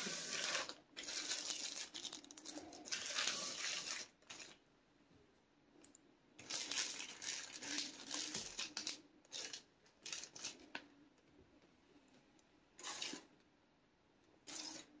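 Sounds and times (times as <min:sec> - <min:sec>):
plastic bags crinkling: 0:00.0 - 0:04.6, 0:06.4 - 0:10.6.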